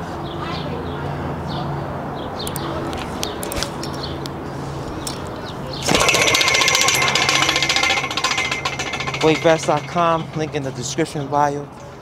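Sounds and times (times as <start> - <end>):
power tool hammering: 5.8 - 10.8.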